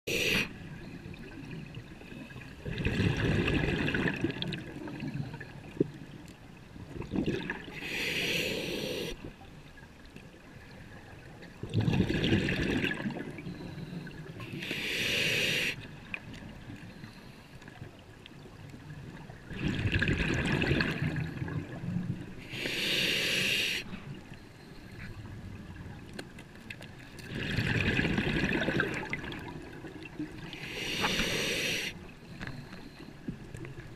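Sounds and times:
exhaled air bubbling: 0:00.1 - 0:05.8, 0:06.8 - 0:09.2, 0:11.6 - 0:14.3, 0:19.3 - 0:22.2, 0:27.2 - 0:32.0
regulator valve hiss: 0:22.5 - 0:23.9, 0:30.7 - 0:31.9.

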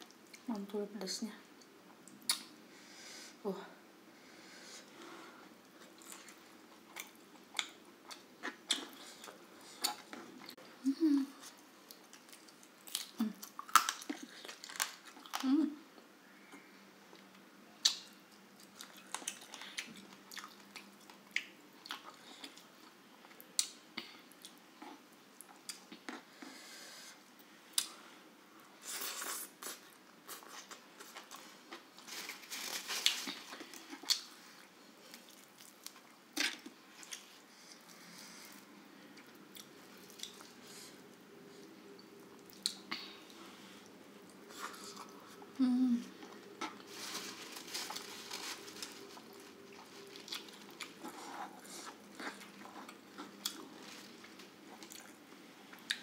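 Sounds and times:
person chewing food: 0:05.8 - 0:10.6, 0:17.1 - 0:26.3, 0:33.0 - 0:45.6, 0:47.7 - 0:56.0.

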